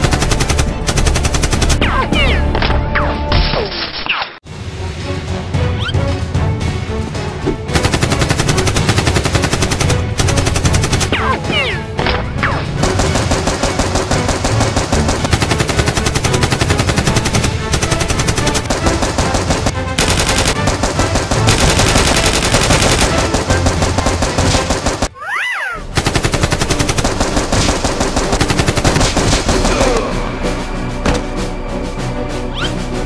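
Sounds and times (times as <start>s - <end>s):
automatic gunfire bursts: 7.8s - 11.1s, 12.8s - 25.1s, 26.0s - 29.8s.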